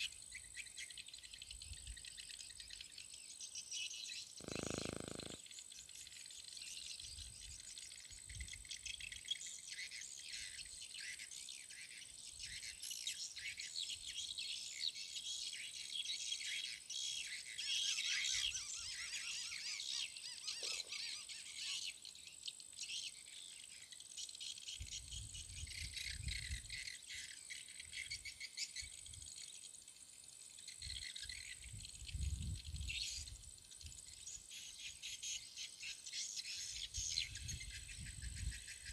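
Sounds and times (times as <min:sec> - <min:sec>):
birds chirping: 0:04.0 - 0:06.0, 0:18.0 - 0:24.4
insects chirring: 0:04.0 - 0:10.5.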